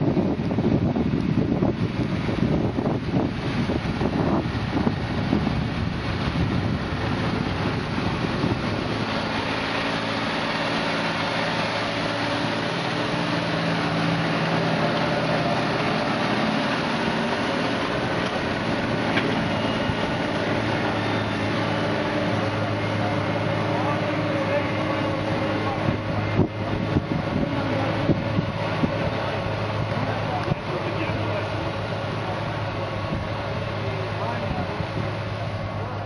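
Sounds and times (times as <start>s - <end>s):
wind on microphone: 0.0s - 9.6s, 25.8s - 30.7s
tractor diesel engine running: 0.0s - 36.0s.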